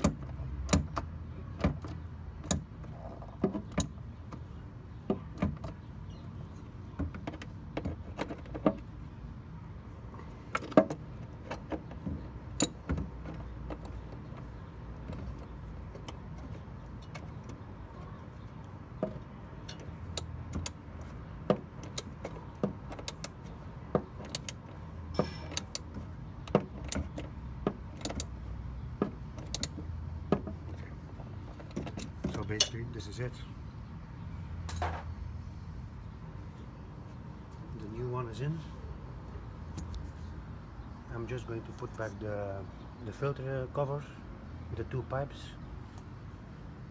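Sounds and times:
low background noise: 0.0s - 46.9s
socket wrench clicking: 19.6s - 20.8s, 21.8s - 23.5s, 24.2s - 24.7s, 25.4s - 27.3s, 28.0s - 28.4s, 29.4s - 29.8s.

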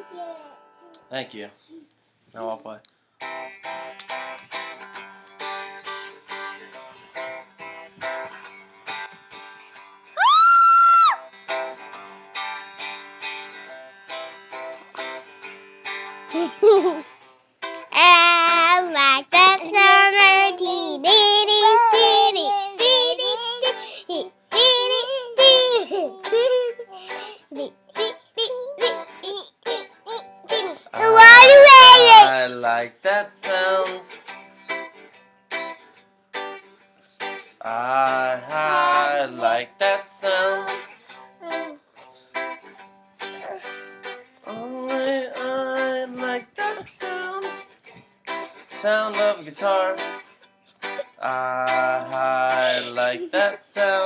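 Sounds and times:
guitar playing: 0.0s - 1.2s, 3.2s - 10.2s, 11.2s - 54.0s
girl singing in high voice: 17.9s - 32.5s, 38.4s - 41.8s, 44.8s - 47.6s, 50.9s - 53.6s.

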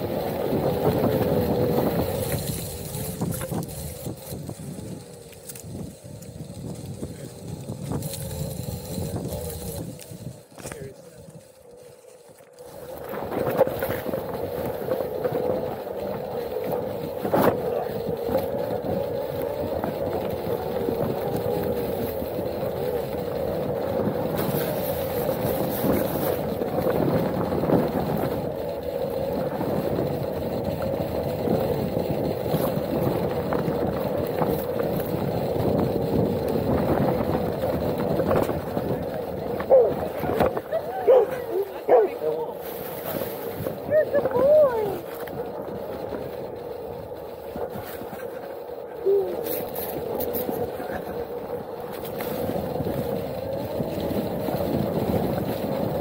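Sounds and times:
electric motor whining: 0.0s - 10.8s, 11.4s - 56.0s
ground rumble: 0.0s - 56.0s.

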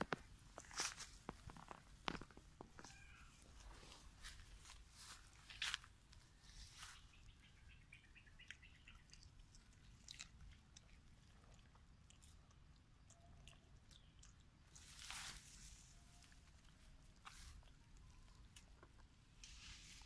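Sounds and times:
rustling in grass: 0.6s - 2.4s, 3.3s - 7.3s, 14.7s - 17.8s, 19.4s - 20.0s.

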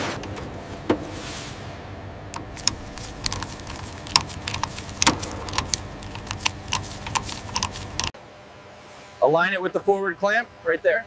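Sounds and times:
low steady hum: 0.0s - 9.2s
metallic clicks of connector: 2.3s - 8.1s.

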